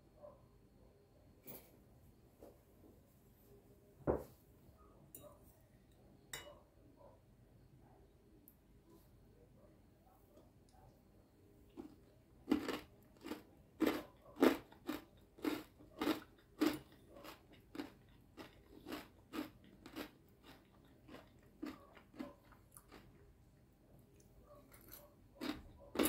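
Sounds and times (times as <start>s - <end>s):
person chewing crunchy salad: 11.7s - 26.0s.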